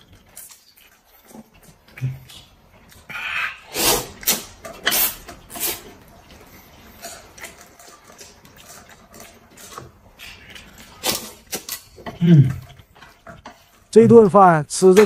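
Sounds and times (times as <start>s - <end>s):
man slurping noodles: 2.0s - 6.0s.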